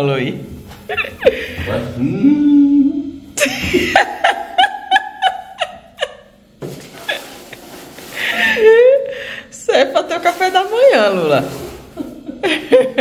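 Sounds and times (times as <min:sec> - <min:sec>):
person laughing: 0:00.9 - 0:06.4, 0:07.0 - 0:09.3, 0:11.9 - 0:13.0.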